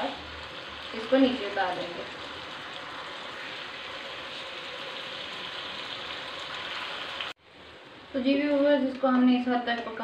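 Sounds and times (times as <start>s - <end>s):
food sizzling in a wok: 0.0s - 8.6s.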